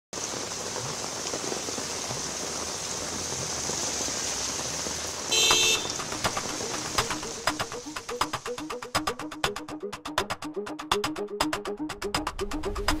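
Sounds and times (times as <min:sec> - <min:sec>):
cars driving through rain: 0:00.2 - 0:08.7
heavy rain on a road: 0:00.2 - 0:08.7
car horn toot: 0:05.3 - 0:06.0.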